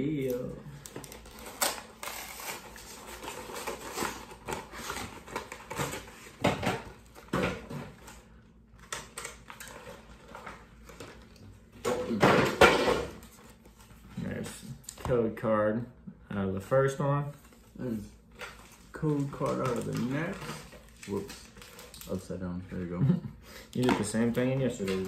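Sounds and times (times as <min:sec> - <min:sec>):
packaging clicks and rustling: 0:18.3 - 0:22.3.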